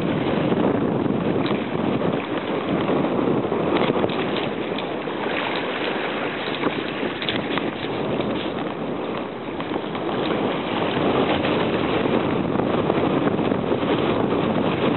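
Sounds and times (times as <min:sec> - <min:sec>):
wind blowing on microphone: 0:00.0 - 0:14.9
small waves splashing over rocks: 0:01.2 - 0:12.4.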